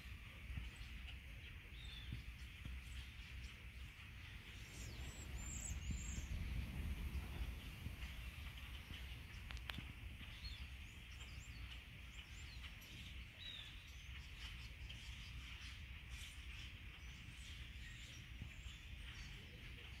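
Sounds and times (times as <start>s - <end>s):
steady low rumble: 0.0s - 14.3s
flock of birds chirping: 0.0s - 20.0s.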